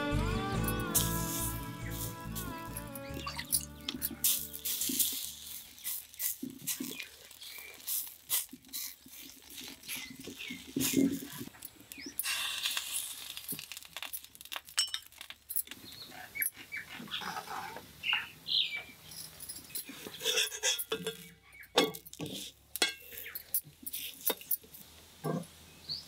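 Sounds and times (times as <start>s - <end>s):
metal utensils clinking: 0.7s - 8.0s, 19.1s - 25.4s
oil sizzling on hot pan: 0.9s - 3.4s, 4.0s - 15.5s.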